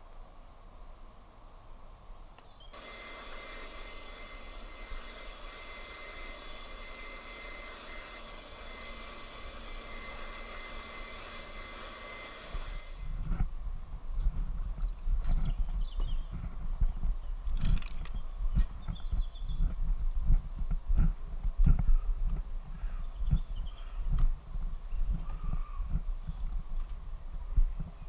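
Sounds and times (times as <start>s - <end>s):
electric grass shears buzzing: 2.7s - 13.5s.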